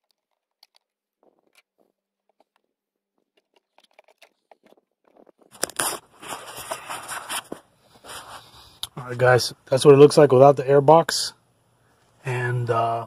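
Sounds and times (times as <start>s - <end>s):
plastic clicks and rustles: 0.0s - 6.8s
camera handling rubbing and knocking: 0.0s - 8.3s.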